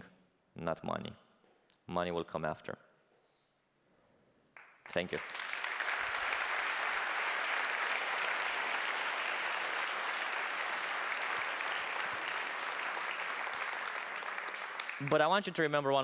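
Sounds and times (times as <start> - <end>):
audience applauding: 4.6 - 15.6.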